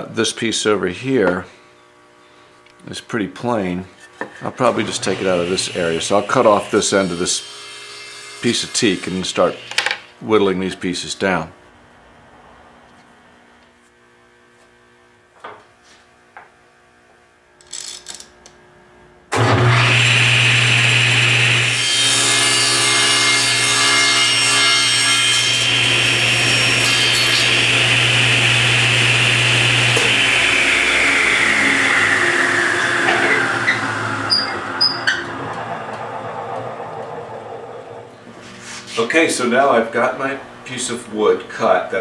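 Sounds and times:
table saw cutting wood: 4.5 - 10.2, 19.3 - 41.0.

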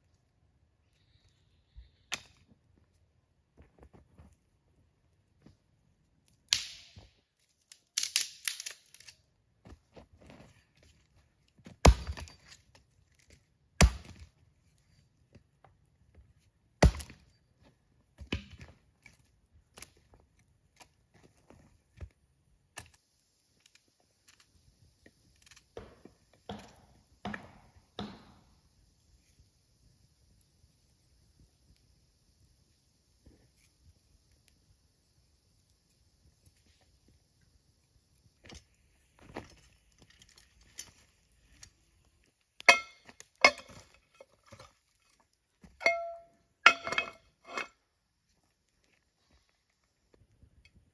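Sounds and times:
faint steady hiss: 0.0 - 50.9
hatchet chopping firewood: 6.5 - 7.1, 11.6 - 12.7, 13.8 - 14.3, 16.8 - 17.4, 18.2 - 19.2, 25.3 - 28.7, 42.6 - 44.7, 45.8 - 47.2
wood cracking as it splits: 6.5 - 9.2.

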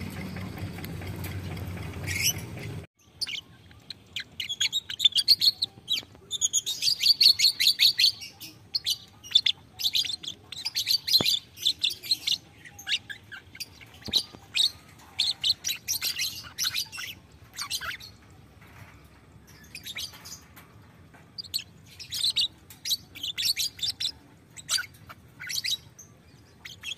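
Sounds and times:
lovebird twittering: 21.4 - 26.9.

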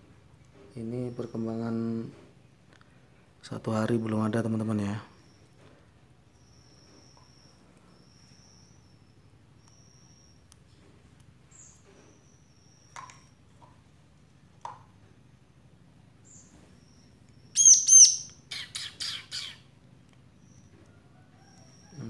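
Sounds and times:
young bird chirping: 16.3 - 19.7.

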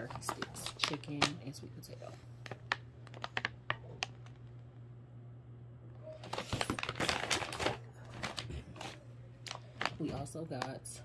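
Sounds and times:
plastic pouches crinkling: 0.0 - 1.6, 2.4 - 4.5, 6.2 - 10.9
low steady hum: 0.0 - 11.0.

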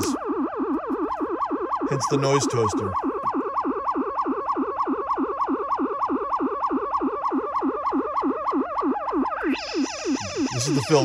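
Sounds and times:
synthesizer warbling siren-like tone: 0.0 - 11.0.

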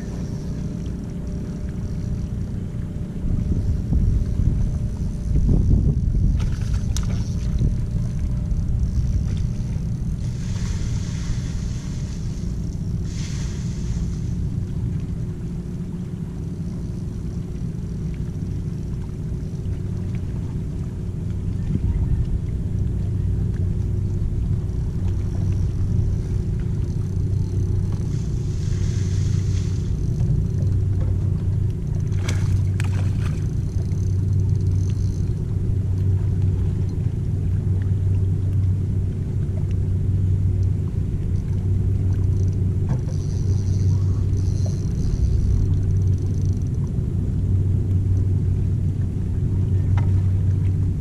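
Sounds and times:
low engine drone: 0.0 - 51.0
brief hiss: 13.0 - 14.4.

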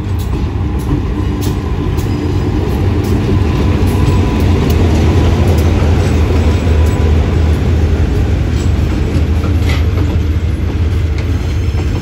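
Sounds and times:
diesel locomotive rumbling: 0.0 - 12.0.

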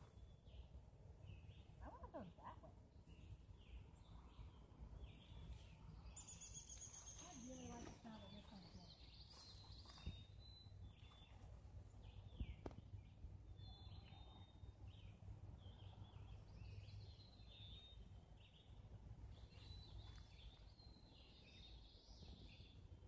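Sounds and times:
low background rumble: 0.0 - 23.0
songbirds chirping and whistling: 0.0 - 23.0
light tap: 12.4 - 12.8.

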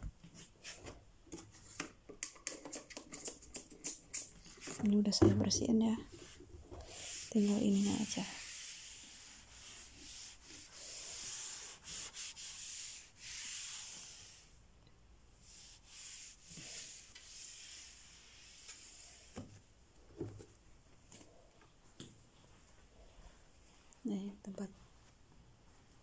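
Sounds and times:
cloth wiping a desk: 6.0 - 14.6, 15.4 - 19.6.

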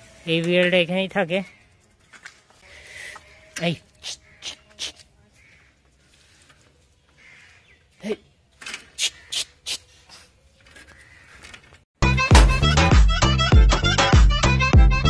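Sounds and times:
loud music with a beat: 12.0 - 15.0.

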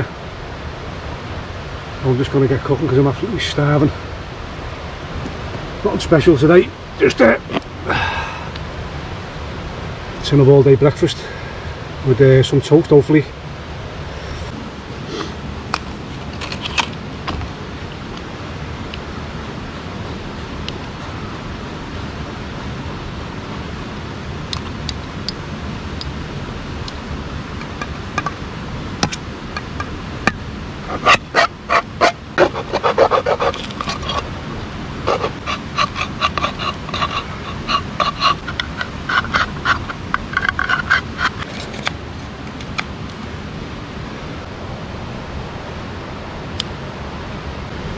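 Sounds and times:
river rushing: 0.0 - 12.2, 12.9 - 47.9
knife scraping metal tin lid: 30.9 - 34.4, 35.1 - 41.9.

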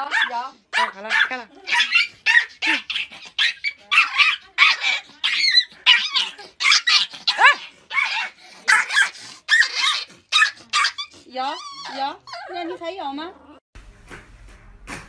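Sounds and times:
small dog yapping: 0.1 - 12.6.

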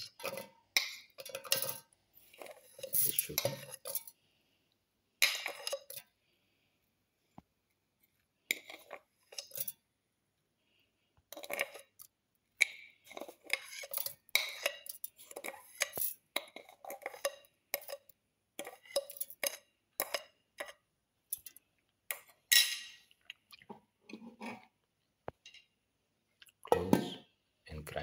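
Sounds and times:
metal spoon clinking on steel jar: 0.0 - 4.1, 5.2 - 6.0, 8.5 - 9.8, 13.1 - 21.5.

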